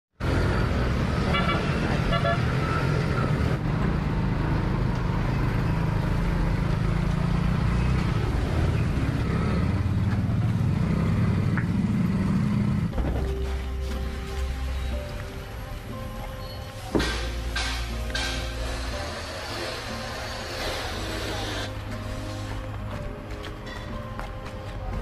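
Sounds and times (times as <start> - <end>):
motorbike engine and road noise: 0.2 - 25.0
horn toots: 1.2 - 2.6.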